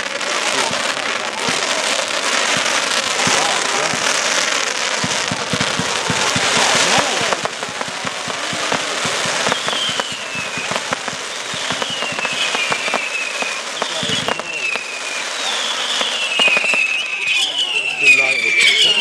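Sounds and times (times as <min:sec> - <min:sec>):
firework pops: 0:00.0 - 0:17.3
crackling hiss: 0:00.0 - 0:17.6
high falling whistles: 0:09.0 - 0:19.0.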